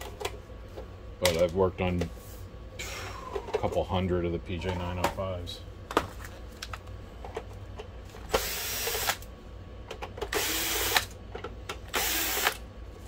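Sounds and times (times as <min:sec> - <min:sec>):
cordless drill running: 0:08.4 - 0:09.2, 0:10.3 - 0:11.1, 0:11.9 - 0:12.6.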